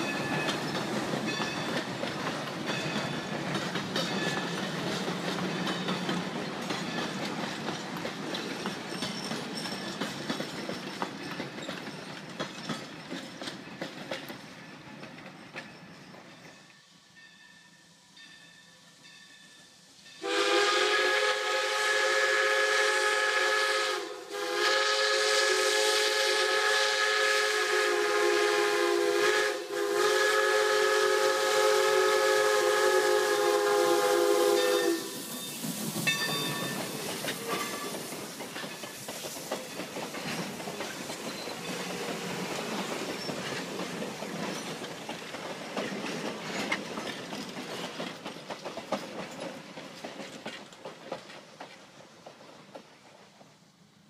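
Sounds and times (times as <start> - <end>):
train wheels clacking over rail joints: 0.0 - 16.8, 27.2 - 53.6
steam locomotive whistle blowing: 19.5 - 38.4.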